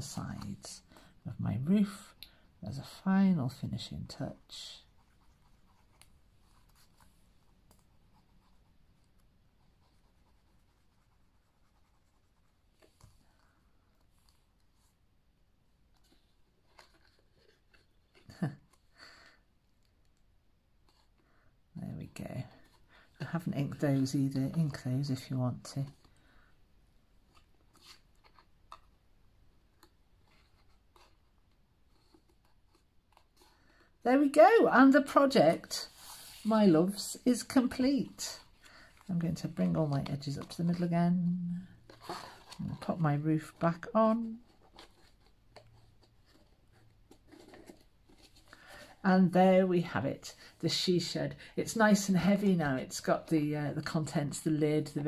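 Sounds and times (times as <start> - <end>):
paper and card rustling: 15.8 - 19.0, 27.2 - 55.0.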